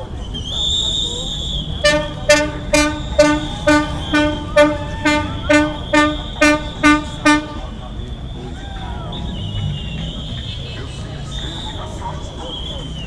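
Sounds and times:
high steady whistling tone: 0.0 - 13.0
horn beeping rhythmically: 1.6 - 8.5.

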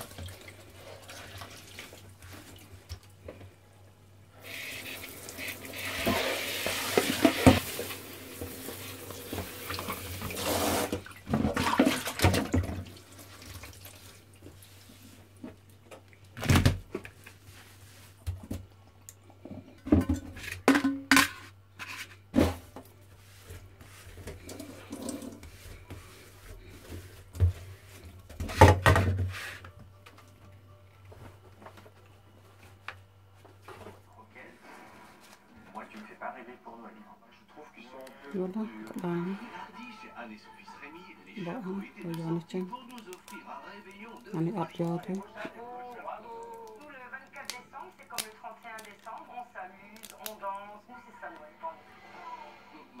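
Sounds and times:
water running into sink: 4.4 - 14.3, 24.4 - 25.7
water splashing in bowl: 4.5 - 14.2.

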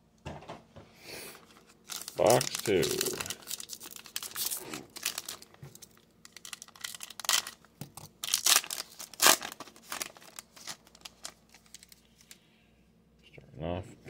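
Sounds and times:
foil wrapper crinkling and tearing: 1.4 - 12.4.

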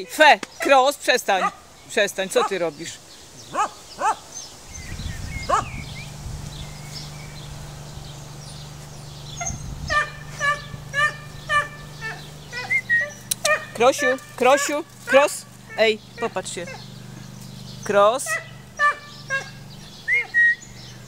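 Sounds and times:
dog yipping: 1.4 - 1.6, 3.5 - 4.2, 5.4 - 5.8, 9.4 - 16.9, 18.3 - 20.6
steady low hum: 4.6 - 21.0
dog whining: 9.4 - 16.9, 18.3 - 20.6.

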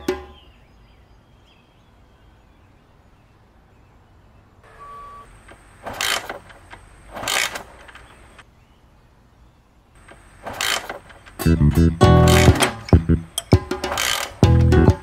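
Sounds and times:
motorcycle kick-starter: 5.5 - 8.2, 10.0 - 15.0
engine turning over: 5.8 - 8.1, 10.1 - 13.0
guitar music: 11.4 - 13.7, 14.4 - 15.0.

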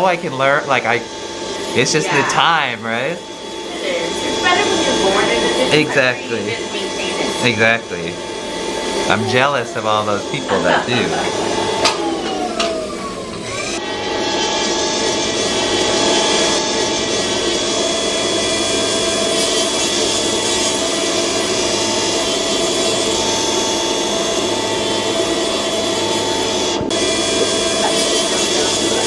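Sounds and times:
nail drill whining: 0.0 - 29.0
burr grinding toenails: 25.1 - 29.0.

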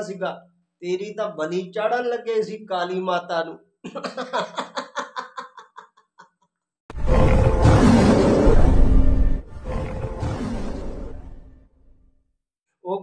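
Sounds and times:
man laughing: 3.8 - 6.6
dramatic music: 6.9 - 11.7.

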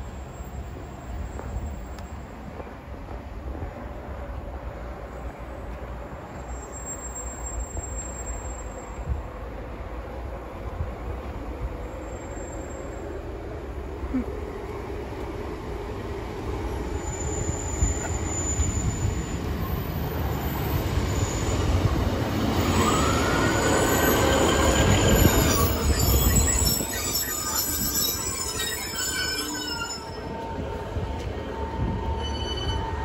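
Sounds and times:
diesel train rumbling: 0.0 - 33.0
train wheels squealing: 6.1 - 9.2, 11.8 - 13.3, 16.6 - 33.0.

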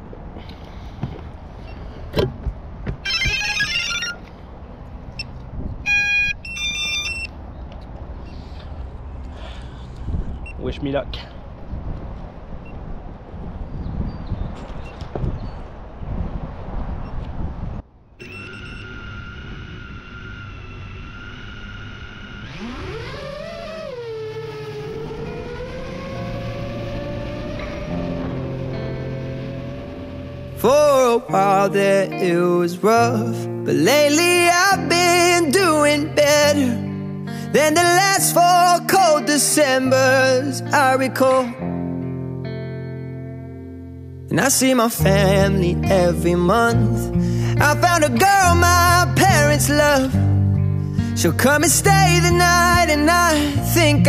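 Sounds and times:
low wind rumble: 0.0 - 31.8
drone controller electronic beeps: 3.1 - 4.3, 5.9 - 7.3, 18.2 - 30.6.

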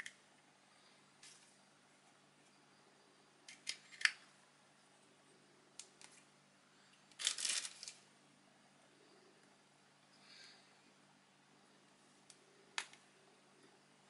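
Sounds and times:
plastic bag crinkling: 7.1 - 8.0.

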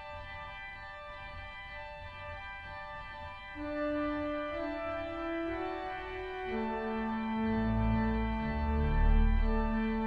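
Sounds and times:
pipe organ playing chords: 3.6 - 10.0.

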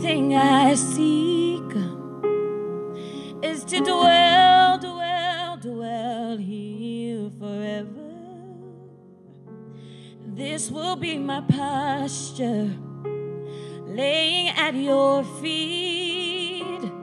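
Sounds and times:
woman singing worship song: 0.0 - 2.2, 3.2 - 8.8, 10.2 - 12.8, 13.9 - 17.0.

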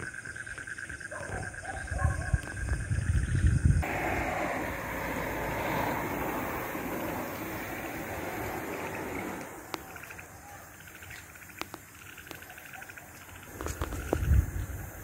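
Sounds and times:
wind buffeting microphone: 1.3 - 10.0, 13.6 - 15.0.

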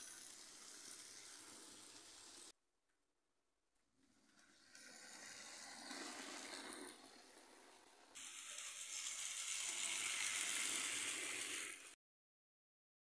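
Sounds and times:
model train whirring and rattling: 0.0 - 2.5, 4.1 - 12.0.

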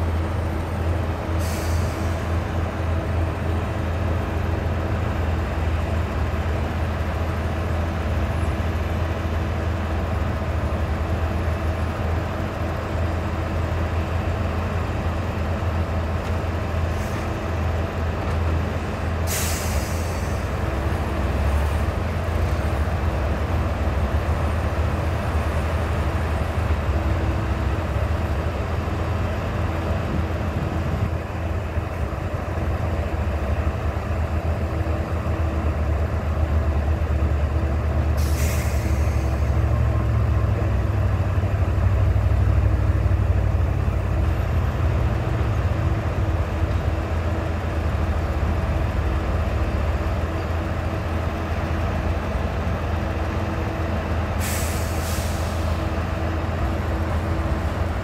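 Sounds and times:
diesel truck engine under load: 0.0 - 58.0
air brake hiss: 1.4 - 2.3, 19.2 - 20.6, 38.2 - 39.5, 54.4 - 55.9.

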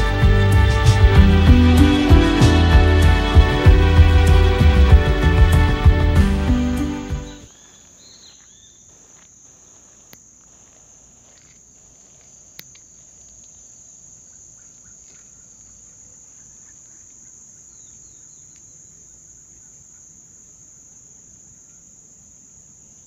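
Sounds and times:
background music: 0.0 - 7.5
insects droning: 0.0 - 23.0
faint chirps: 7.2 - 23.0
small clicks: 11.3 - 13.6.

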